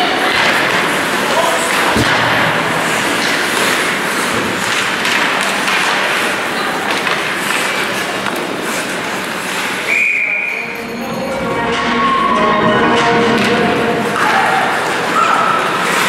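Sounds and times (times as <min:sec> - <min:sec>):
skates and sticks on ice: 0:00.0 - 0:10.6, 0:13.4 - 0:16.0
spectators' voices: 0:00.0 - 0:16.0
referee's whistle blast: 0:09.9 - 0:10.8.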